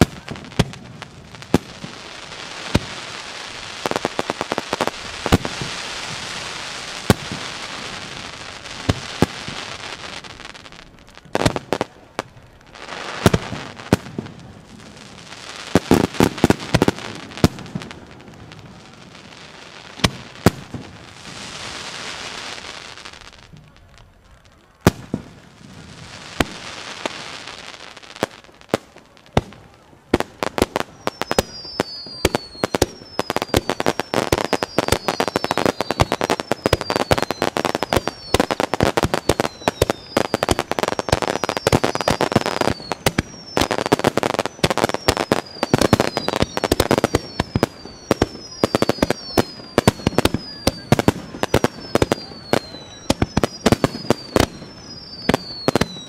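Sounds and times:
falling whistles: 0:30.8 - 0:56.0.

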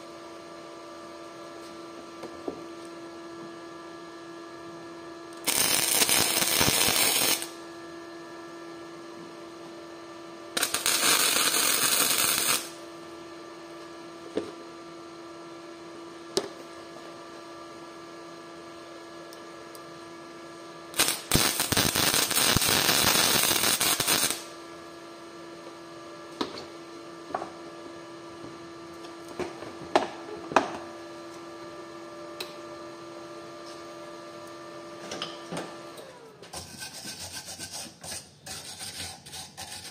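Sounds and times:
steady electrical hum: 0:04.7 - 0:14.1, 0:17.0 - 0:29.4
power tool running: 0:05.3 - 0:07.8, 0:10.5 - 0:12.9, 0:20.9 - 0:24.6.

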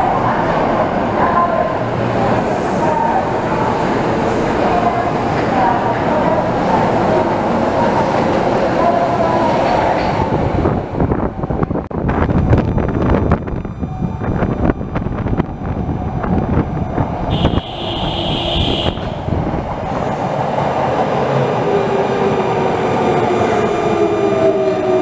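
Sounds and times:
shrill train horn: 0:17.3 - 0:19.3.

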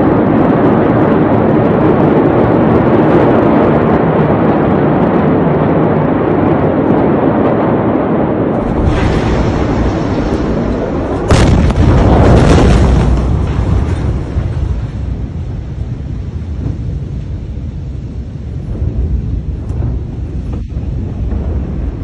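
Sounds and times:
deep rumble: 0:00.0 - 0:22.0
steady roar of noise: 0:00.0 - 0:22.0
explosion boom: 0:08.5 - 0:22.0.

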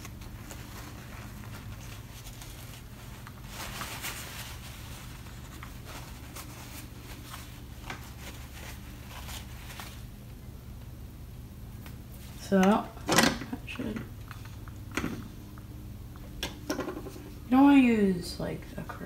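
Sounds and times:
steady low hum: 0:00.0 - 0:19.0
small handling clicks and rustles: 0:11.8 - 0:17.3.

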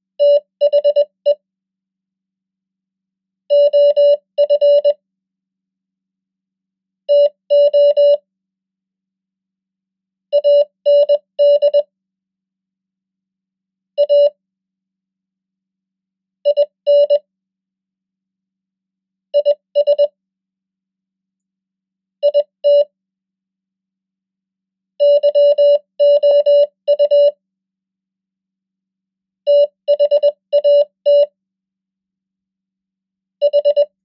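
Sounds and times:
morse code beeps: 0:03.5 - 0:05.0, 0:07.1 - 0:08.2, 0:10.4 - 0:11.9, 0:19.4 - 0:20.1, 0:25.0 - 0:27.4, 0:29.5 - 0:31.3, 0:33.4 - 0:34.0.

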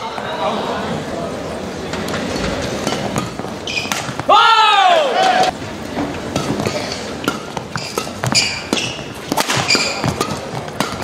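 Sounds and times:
rackets hitting shuttlecock: 0:02.0 - 0:04.4, 0:05.2 - 0:11.0
shoes squeaking on floor: 0:02.3 - 0:04.3, 0:06.4 - 0:11.0.

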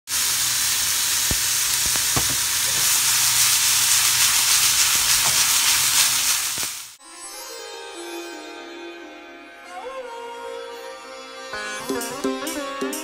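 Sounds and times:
bean sprouts sizzling in pan: 0:00.1 - 0:07.0
light knocks against pan: 0:02.1 - 0:02.4.

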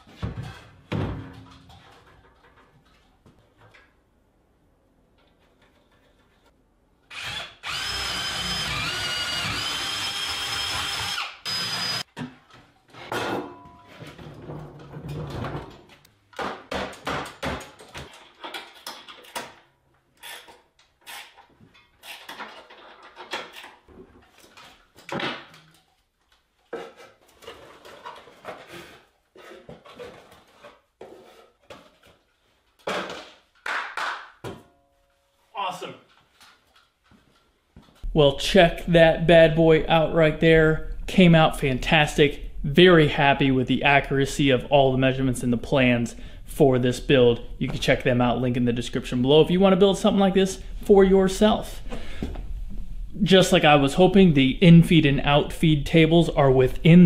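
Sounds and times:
power drill whine: 0:07.1 - 0:12.0
metal and wood parts clunking: 0:12.1 - 0:19.8.

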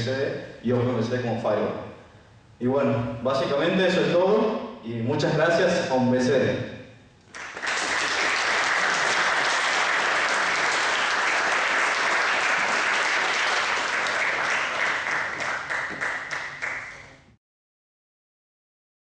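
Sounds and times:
audience applauding: 0:07.3 - 0:17.3.

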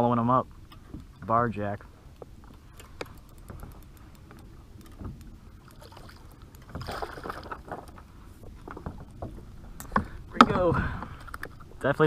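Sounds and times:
low rumble of water and wind: 0:00.0 - 0:12.0
fish splashing and thrashing: 0:02.4 - 0:11.8.

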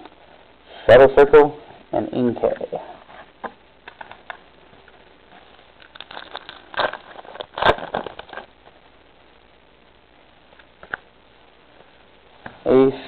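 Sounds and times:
foil wrapper crinkling: 0:05.4 - 0:08.6.

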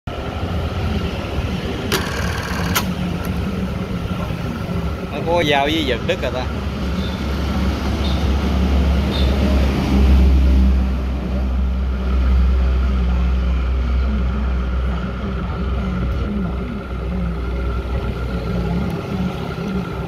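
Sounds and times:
sewing machine motor humming: 0:01.9 - 0:03.0.

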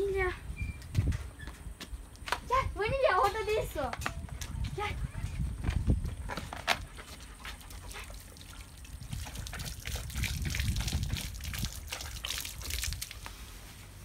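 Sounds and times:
dog lapping water: 0:06.1 - 0:13.2
water trickling onto tiles: 0:06.9 - 0:13.4.

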